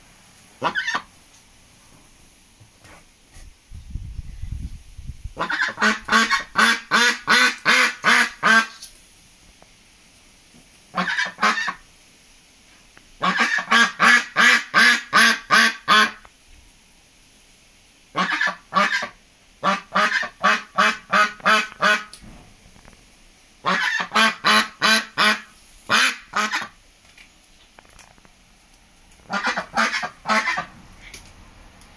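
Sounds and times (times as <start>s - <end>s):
duck quacking loudly: 0.6s - 1.1s, 5.4s - 8.8s, 10.9s - 11.8s, 13.2s - 16.2s, 18.1s - 22.1s, 23.6s - 26.8s, 29.3s - 30.7s.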